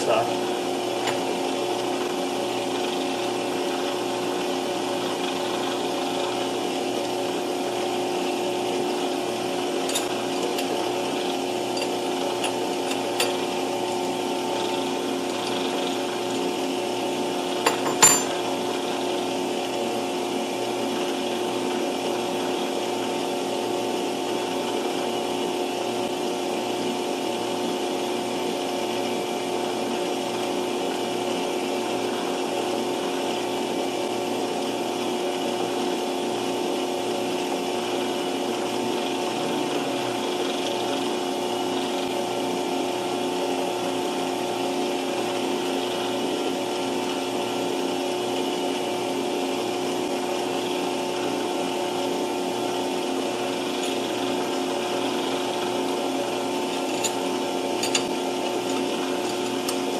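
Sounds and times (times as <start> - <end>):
lathe motor humming: 0.0 - 59.9.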